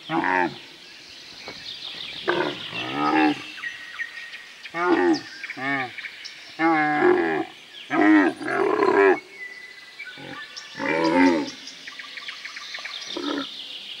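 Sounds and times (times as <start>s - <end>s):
camels calling: 2.2s - 3.5s, 13.1s - 13.5s.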